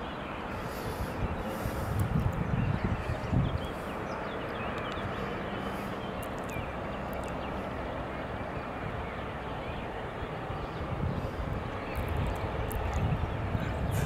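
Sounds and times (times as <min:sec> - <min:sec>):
wind gust on microphone: 0:00.0 - 0:07.0, 0:08.4 - 0:14.0
outdoor background noise: 0:00.0 - 0:14.0.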